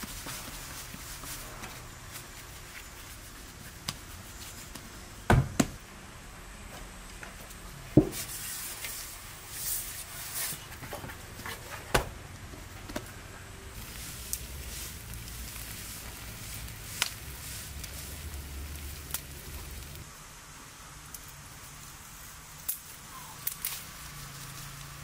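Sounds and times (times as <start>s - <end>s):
wood fire popping and crackling: 7.0s - 20.1s, 21.0s - 25.0s.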